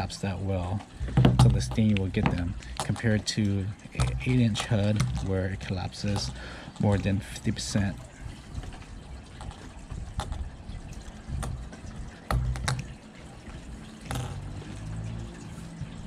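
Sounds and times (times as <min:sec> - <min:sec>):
lures knocking and clicking: 0:00.9 - 0:08.0, 0:09.4 - 0:10.4, 0:11.3 - 0:14.9.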